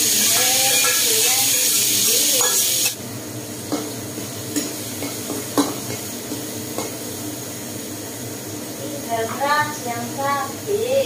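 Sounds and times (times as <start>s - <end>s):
spatula scraping a wok: 0.0s - 2.9s
tofu sizzling in hot oil: 0.0s - 11.0s.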